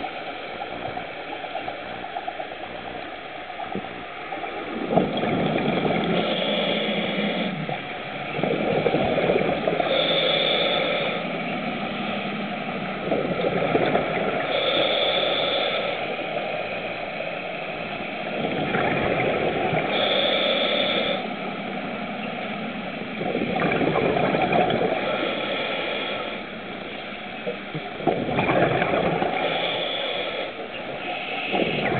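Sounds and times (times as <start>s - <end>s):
exhaled bubbles rushing: 3.6s - 10.3s, 12.4s - 14.6s, 18.2s - 20.2s, 23.0s - 25.4s, 27.5s - 29.8s, 30.8s - 31.9s
regulator hissing inhale: 5.9s - 8.4s, 9.2s - 12.8s, 14.3s - 18.3s, 19.7s - 22.5s, 24.9s - 27.6s, 29.3s - 31.9s.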